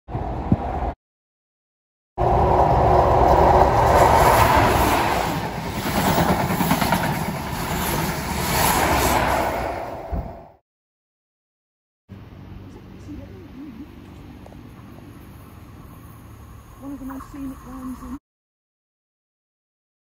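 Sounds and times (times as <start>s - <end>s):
train passing at speed: 2.2s - 10.6s, 14.6s - 18.2s.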